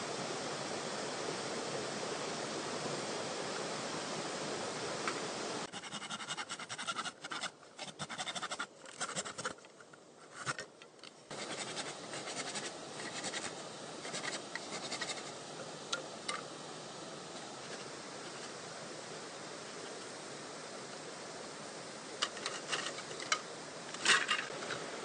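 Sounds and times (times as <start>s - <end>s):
hand saw rasping through bamboo: 5.7s - 9.6s, 10.3s - 10.6s, 11.3s - 15.3s
steady rushing background noise: 11.3s - 25.0s.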